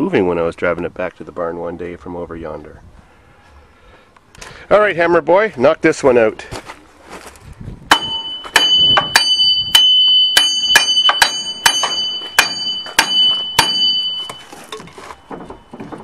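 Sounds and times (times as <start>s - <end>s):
hammer blows on steel axle: 7.9s - 14.6s.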